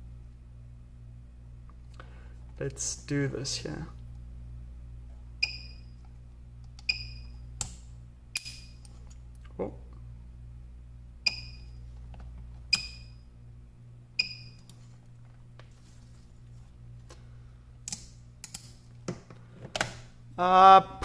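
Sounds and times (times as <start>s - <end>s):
spot welder snapping: 7.6s - 8.9s.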